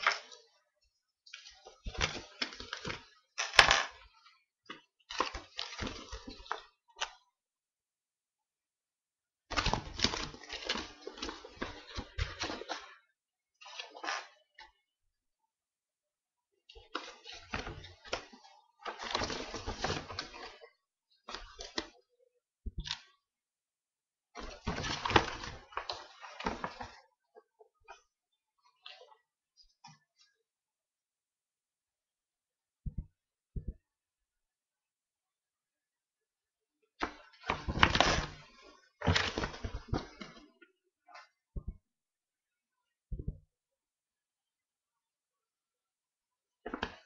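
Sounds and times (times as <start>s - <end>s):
paper rustling and crinkling: 9.5s - 12.9s, 16.9s - 22.0s, 24.4s - 27.0s, 37.0s - 40.5s.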